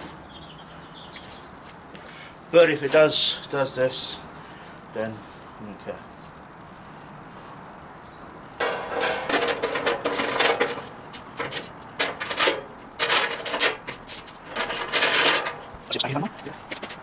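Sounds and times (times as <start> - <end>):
rough rasping metal bursts: 8.6 - 15.8.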